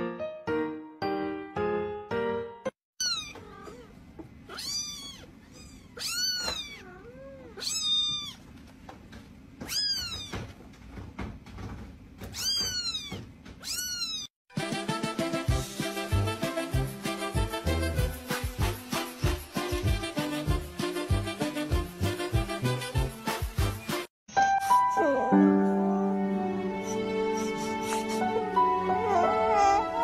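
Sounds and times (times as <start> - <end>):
music: 0.0 - 2.8, 14.5 - 30.0
kittens mewing: 3.0 - 8.4, 9.6 - 10.4, 12.3 - 14.3.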